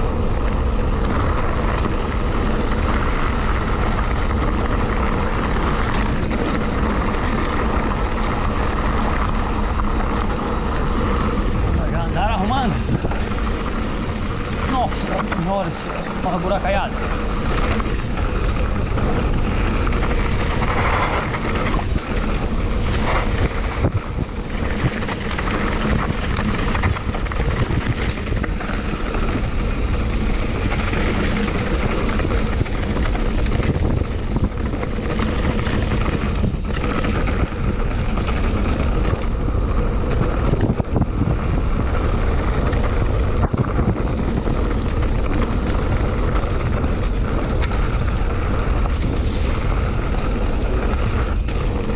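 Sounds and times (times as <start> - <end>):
bike rattling: 0.0 - 51.9
wind on microphone: 0.0 - 51.9
tyres crunching over stones: 0.6 - 40.8.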